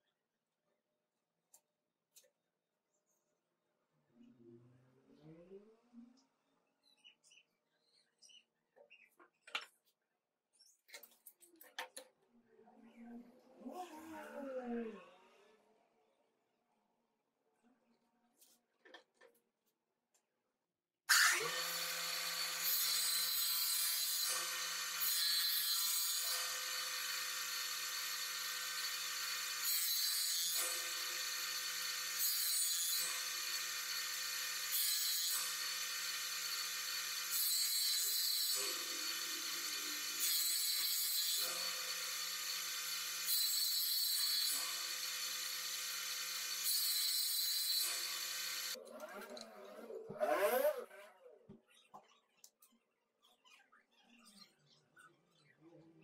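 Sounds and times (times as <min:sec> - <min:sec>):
jointer cutting wood: 0:21.1 - 0:51.0.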